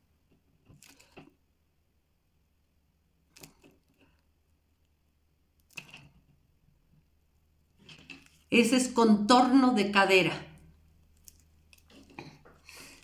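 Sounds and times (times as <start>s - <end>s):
film-wrapped doll rustling: 7.7s - 8.6s, 11.0s - 13.0s.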